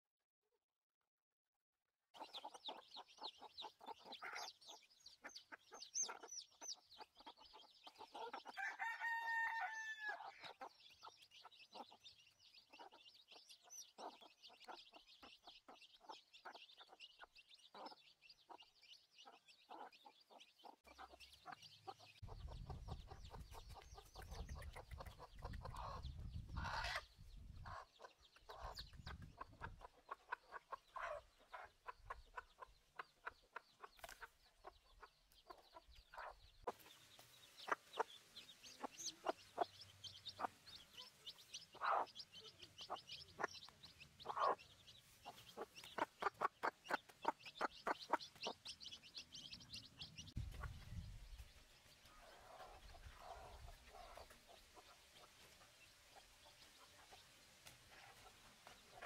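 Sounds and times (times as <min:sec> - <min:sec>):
hens clucking: 0:02.2 - 0:51.4, 0:52.0 - 0:59.0
chicks peeping: 0:02.2 - 0:59.0
drawn-out chicken call: 0:08.2 - 0:10.6, 0:23.3 - 0:27.1.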